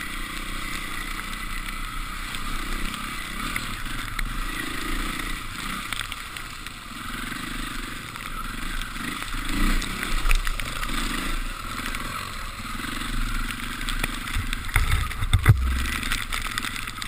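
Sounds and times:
motorcycle engine revving: 0:00.0 - 0:17.0
sharp knocks and low thumps: 0:14.3 - 0:16.3.

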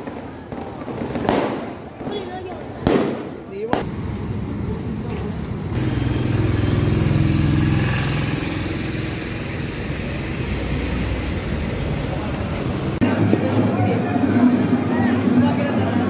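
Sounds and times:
engine humming: 0:03.8 - 0:13.0
faint high whine: 0:05.8 - 0:13.0.

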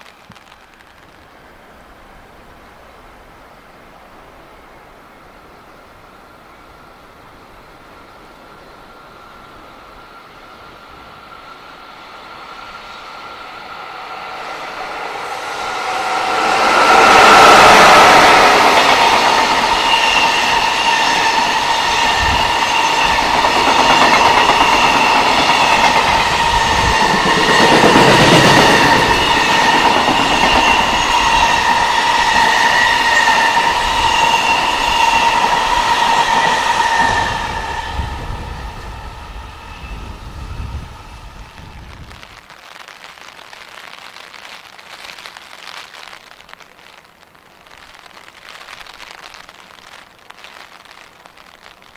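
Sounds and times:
freight train rumbling past: 0:03.8 - 0:42.1.

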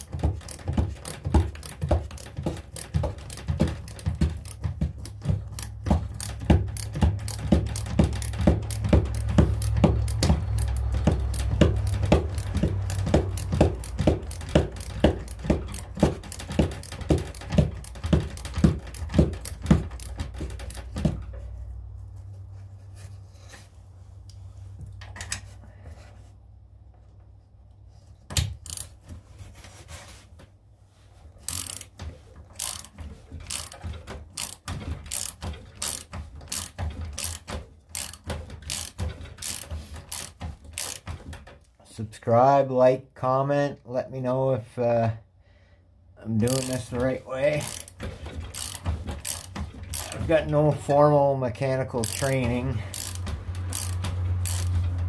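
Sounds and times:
ratchet wrench clicking: 0:00.0 - 0:21.1, 0:28.4 - 0:29.0, 0:31.4 - 0:41.2, 0:46.4 - 0:50.2, 0:52.0 - 0:55.0.

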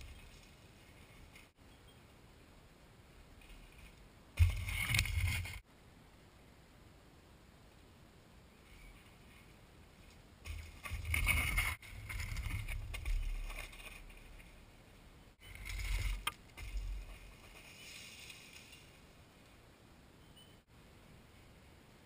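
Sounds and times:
bike rattling over rough ground: 0:00.0 - 0:01.6, 0:03.4 - 0:05.6, 0:08.7 - 0:14.8, 0:15.4 - 0:19.2
bike tyres on dirt: 0:00.0 - 0:01.6, 0:03.2 - 0:05.7, 0:08.5 - 0:19.6.

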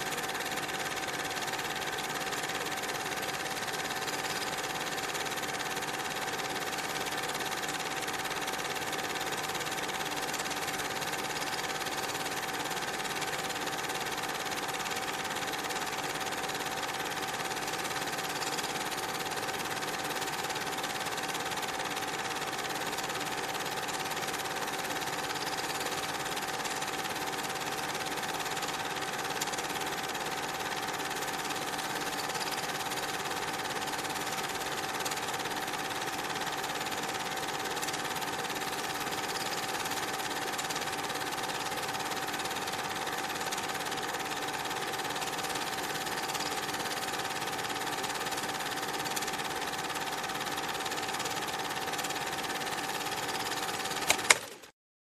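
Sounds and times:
film projector whirring: 0:00.0 - 0:54.7.

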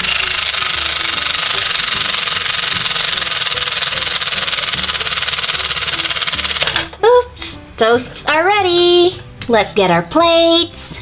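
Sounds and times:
toy toaster hissing buzz: 0:00.0 - 0:06.9.

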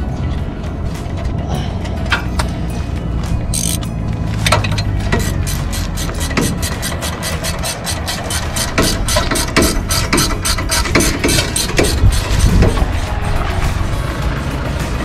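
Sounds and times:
vehicle engine running: 0:00.0 - 0:15.0
ratchet wrench clicking: 0:03.5 - 0:13.1.

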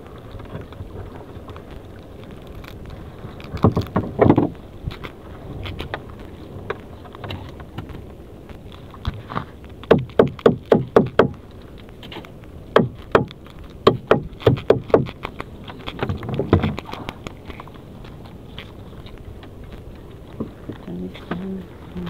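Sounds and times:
sharp taps and knocks: 0:03.4 - 0:17.8.

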